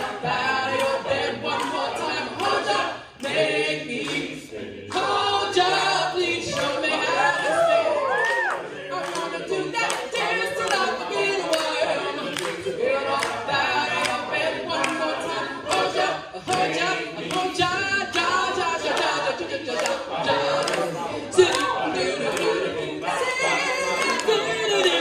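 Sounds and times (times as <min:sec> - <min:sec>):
choir singing a cappella: 0:00.0 - 0:25.0.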